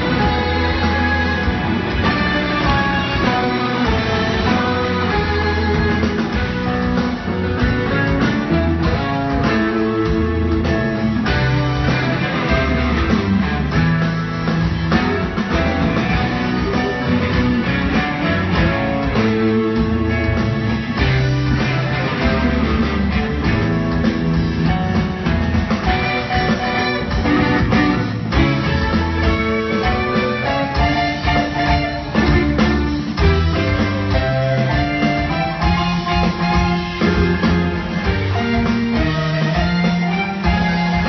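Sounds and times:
live rock band playing: 0.0s - 41.0s.

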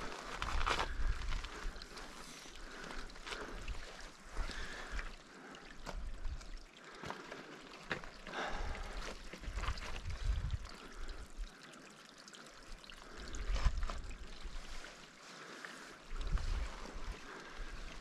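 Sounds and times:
wind buffeting microphone: 10.0s - 10.7s.

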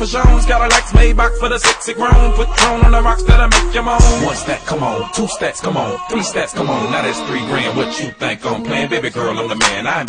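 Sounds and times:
deep bass hits: 0.0s - 4.8s
rapping over a hip hop beat: 0.0s - 10.0s.

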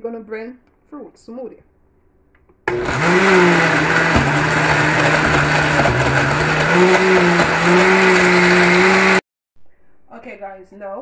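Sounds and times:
blender motor running: 2.7s - 9.2s.

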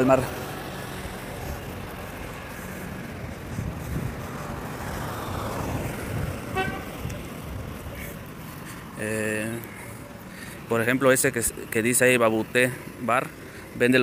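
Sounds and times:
passing cars hum: 0.0s - 14.0s.

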